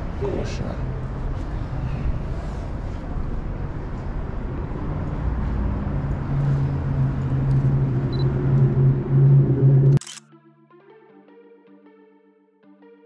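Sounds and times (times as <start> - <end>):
subway train rumble: 0.0 - 10.0.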